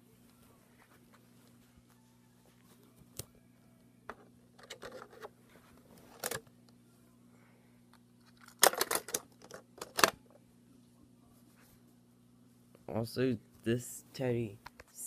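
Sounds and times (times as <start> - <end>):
faint steady hum: 0.0 - 15.0
plastic toy clicks and knocks: 8.4 - 10.2.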